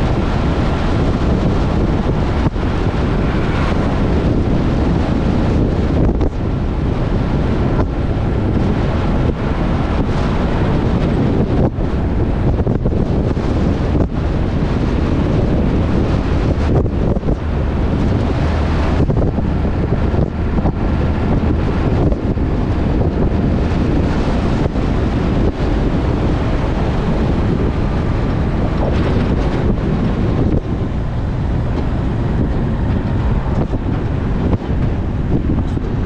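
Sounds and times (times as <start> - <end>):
truck engine and tyres rumbling: 0.0 - 36.0
wind rush on microphone: 0.0 - 36.0.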